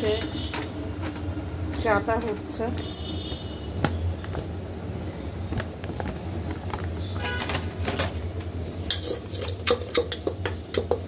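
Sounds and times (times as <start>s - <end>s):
spoon clinking against steel bowl: 8.9s - 11.0s.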